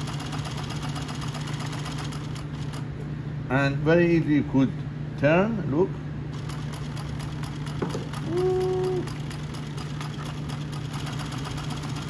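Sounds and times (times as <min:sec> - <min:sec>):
sewing machine stitching: 0:00.0 - 0:02.8, 0:06.3 - 0:12.0.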